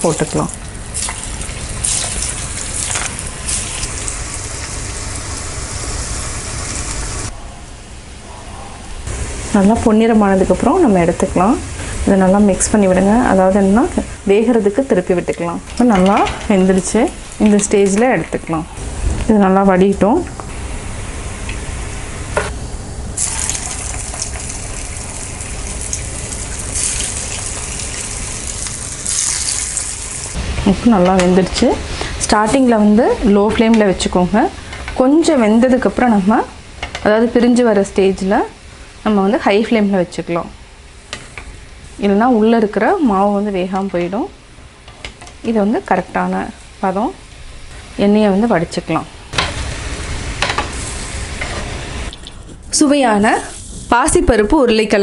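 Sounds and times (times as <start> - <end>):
food sizzling in hot oil: 0.0 - 7.3, 23.2 - 30.4, 49.4 - 55.0.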